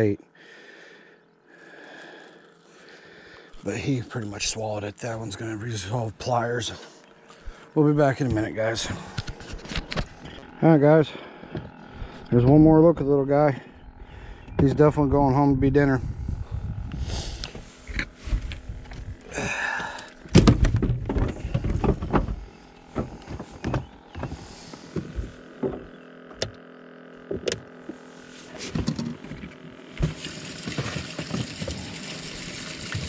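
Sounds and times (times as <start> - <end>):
gear clunking and clicking on deck: 17.5 - 26.6, 27.3 - 28.0, 28.6 - 31.8
water running into a tank: 29.8 - 33.0.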